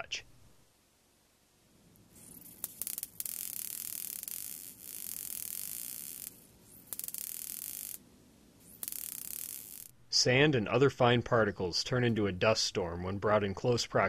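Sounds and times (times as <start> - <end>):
static discharge snapping and hissing: 2.0 - 8.0.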